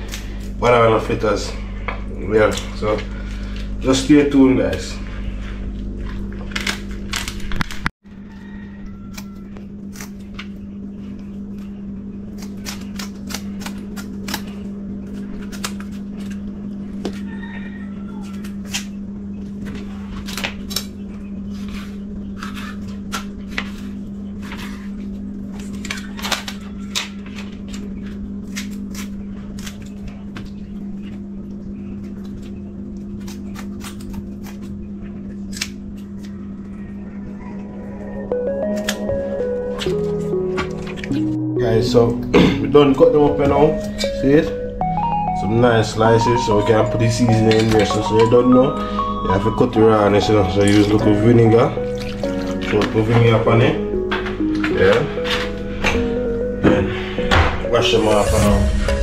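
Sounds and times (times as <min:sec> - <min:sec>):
steady low hum: 0:00.0 - 0:17.3, 0:17.9 - 0:59.0
scissors snipping: 0:35.5 - 0:36.3.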